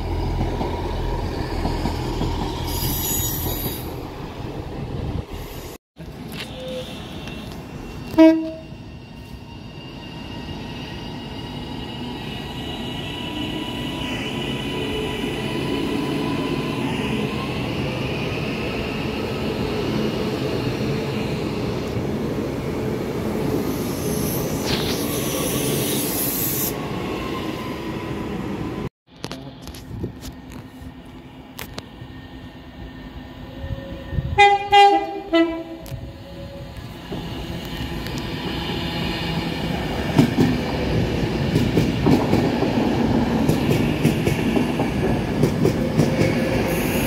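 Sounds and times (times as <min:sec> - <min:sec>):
train horn blast: 0:06.4 - 0:08.8, 0:34.3 - 0:36.0
train wheels rumbling on rail: 0:33.6 - 0:47.0.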